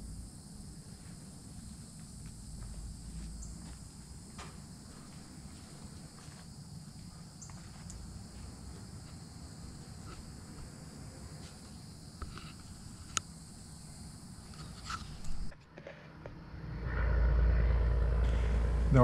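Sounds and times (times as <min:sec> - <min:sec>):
insects chirring: 0:00.0 - 0:19.0
low rumble: 0:16.2 - 0:19.0.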